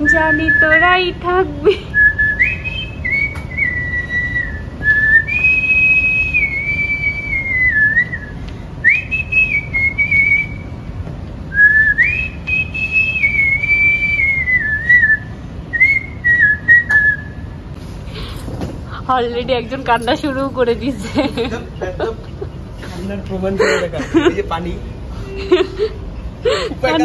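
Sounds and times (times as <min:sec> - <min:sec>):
man whistling a tune: 0:00.2 - 0:00.9, 0:01.9 - 0:10.8, 0:11.5 - 0:17.5.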